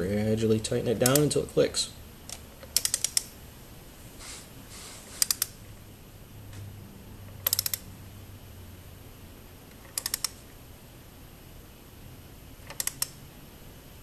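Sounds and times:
torque wrench ratchet clicks: 2.6 - 3.3, 7.4 - 7.8, 9.8 - 10.4, 12.7 - 13.1.

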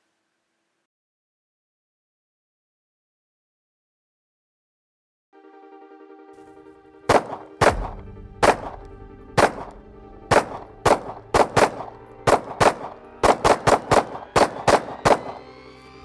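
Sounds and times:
pistol shots with echo: 7.1 - 15.5.

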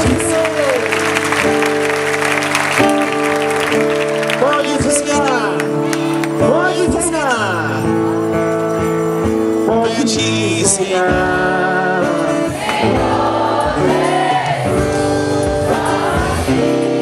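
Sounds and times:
held accompanying chords: 0.0 - 17.0
voices singing together: 10.9 - 17.0.

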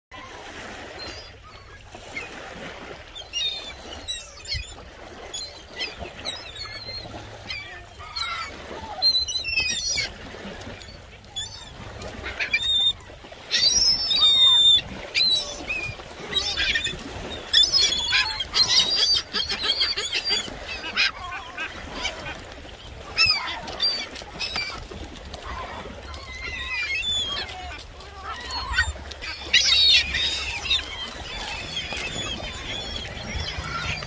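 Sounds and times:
gulls calling: 0.2 - 34.0
wings flapping: 15.0 - 34.0.

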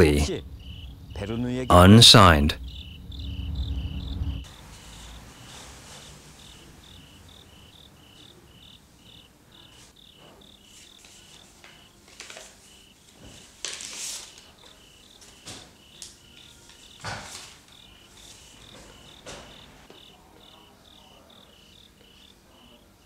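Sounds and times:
crickets chirping: 0.0 - 23.0
paper rustling: 10.7 - 19.0.

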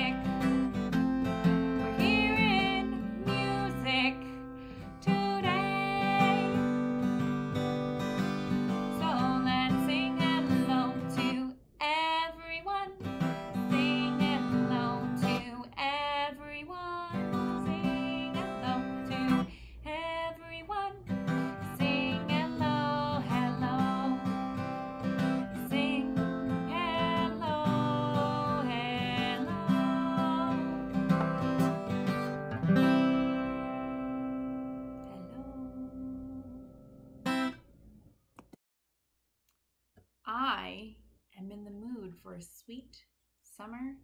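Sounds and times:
woman singing: 0.0 - 0.8, 1.8 - 6.8, 8.9 - 31.2, 35.0 - 36.9
acoustic guitar strumming: 0.0 - 11.4, 13.0 - 15.5, 17.1 - 19.5, 21.0 - 37.6.

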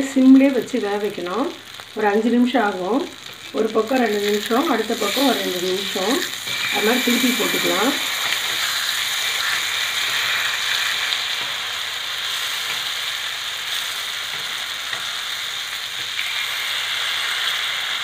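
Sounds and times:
fish sizzling in oil on a pan: 0.0 - 18.0
metal spatula scraping a pan: 5.0 - 10.9.

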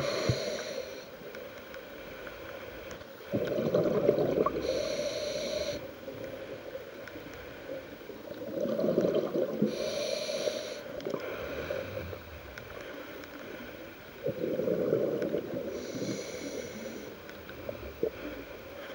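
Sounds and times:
hissing regulator inhale: 0.0 - 1.3, 4.4 - 6.6, 9.6 - 13.8, 15.6 - 17.2
gurgling exhaled bubbles: 3.3 - 4.8, 8.3 - 9.8, 14.2 - 15.8.

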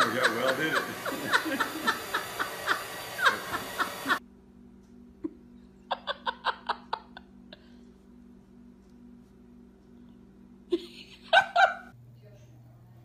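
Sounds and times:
woman laughing hysterically: 0.0 - 4.2, 5.3 - 7.4, 10.7 - 11.9.

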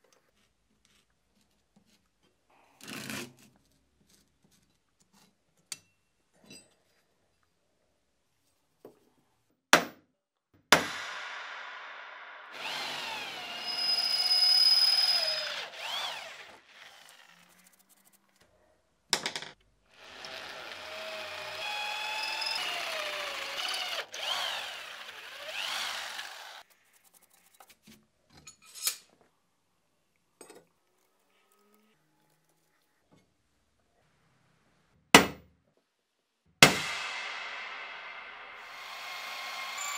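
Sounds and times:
power tool cutting steel: 12.5 - 17.8, 20.0 - 26.6, 37.8 - 39.9
wavering squeal: 13.2 - 16.1.

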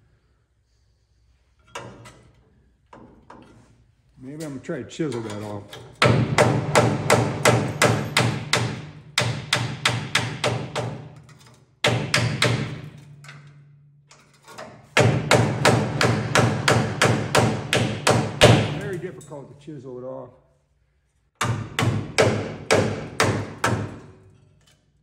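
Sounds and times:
hammer striking chisel on steel: 5.2 - 13.6, 14.9 - 19.3, 21.4 - 24.8.

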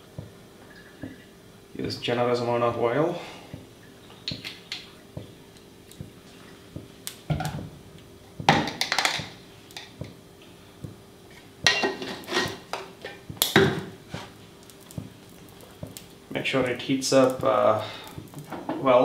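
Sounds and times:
range hood fan humming: 0.0 - 19.0
bottles and jars knocking and clinking: 8.4 - 10.2.

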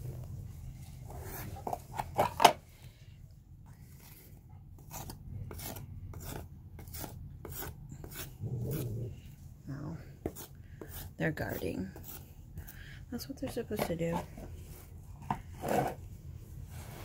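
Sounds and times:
putty knife scraping: 4.8 - 8.8, 10.2 - 12.8.

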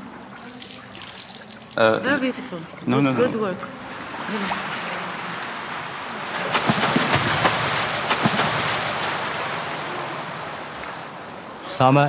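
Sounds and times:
short sharp splashes: 0.0 - 11.3
water splashing and sloshing: 0.0 - 11.7.

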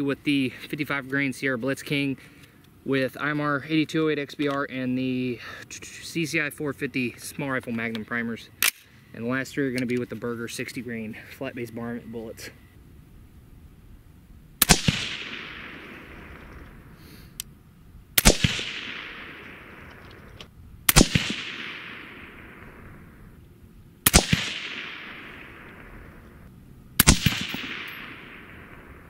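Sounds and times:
suppressed rifle shots: 14.6 - 17.0, 18.2 - 23.3, 24.0 - 26.4, 27.0 - 29.0.

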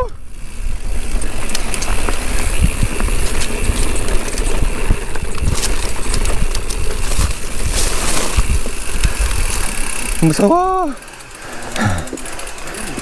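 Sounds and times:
wind rumbling on microphone: 0.0 - 10.2
bike rattling over ground: 0.0 - 13.0.

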